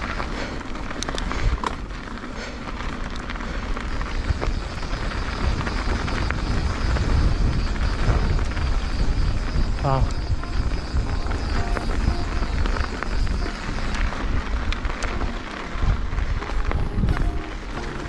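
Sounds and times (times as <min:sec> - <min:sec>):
bike clicks and rattles: 0:00.0 - 0:18.0
bike tyre noise: 0:00.0 - 0:18.0
wind rumble on microphone: 0:00.0 - 0:18.0.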